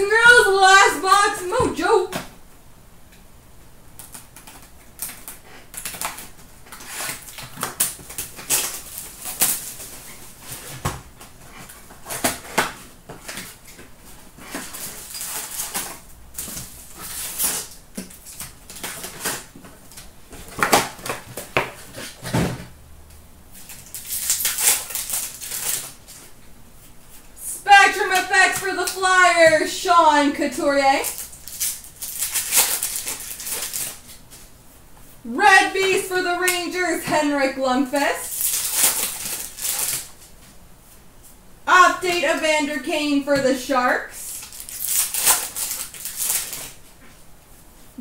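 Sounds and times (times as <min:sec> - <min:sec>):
cardboard and wrappers rustling: 0:04.0 - 0:22.7, 0:23.5 - 0:41.0, 0:44.2 - 0:47.2.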